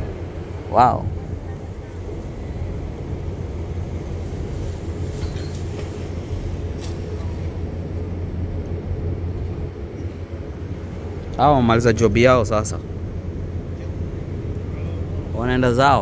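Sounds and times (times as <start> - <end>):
ship engines rumbling: 0.0 - 16.0.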